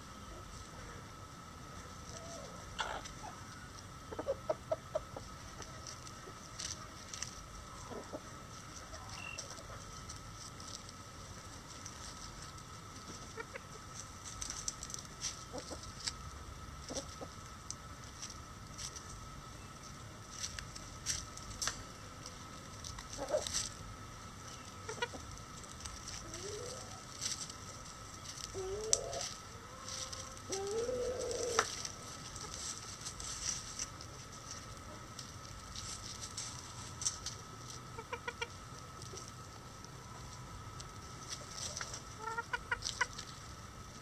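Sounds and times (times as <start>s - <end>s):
chickens clucking softly: 1.8s - 11.0s, 11.7s - 14.6s, 15.2s - 16.2s, 16.8s - 18.8s, 22.8s - 23.8s, 24.4s - 33.2s, 36.6s - 44.0s.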